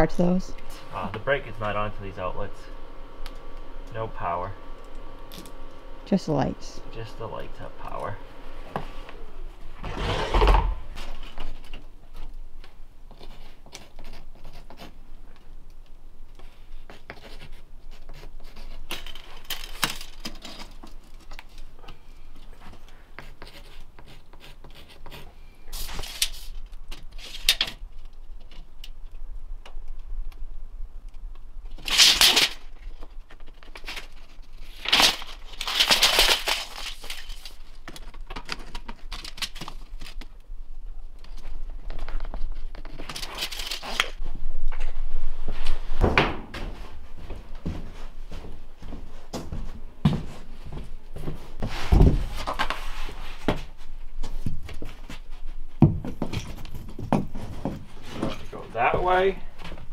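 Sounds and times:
pencil scratching on wall: 0:16.4 - 0:18.9, 0:22.6 - 0:26.5.

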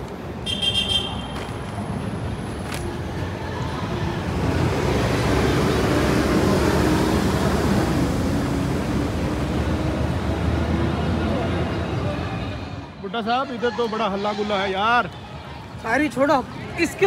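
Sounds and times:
vehicle engine and tyres passing: 0:00.0 - 0:13.0.

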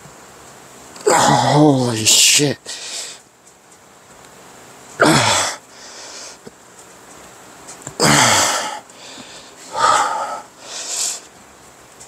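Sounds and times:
man grunting with effort: 0:01.0 - 0:01.7, 0:05.0 - 0:05.6, 0:08.0 - 0:08.9, 0:09.7 - 0:10.6.

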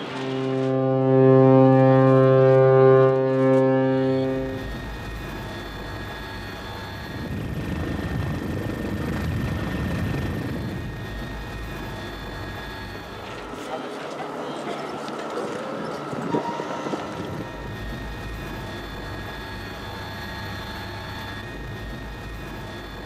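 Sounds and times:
ship horn long blast: 0:00.0 - 0:08.0
helicopter rumble: 0:00.0 - 0:23.0.

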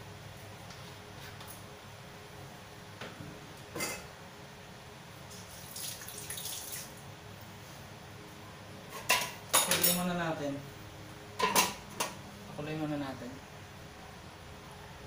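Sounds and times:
sauce splashing trickle: 0:05.4 - 0:07.0.

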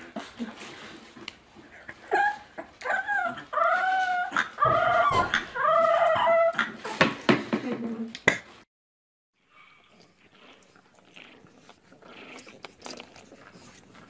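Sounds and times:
puppy howling: 0:02.1 - 0:06.8.

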